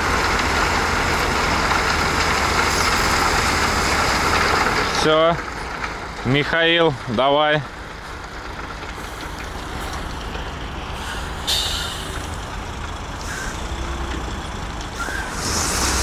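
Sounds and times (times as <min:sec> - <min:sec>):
truck engine running: 0:00.0 - 0:16.0
air brake hiss: 0:11.0 - 0:12.2, 0:15.0 - 0:16.0.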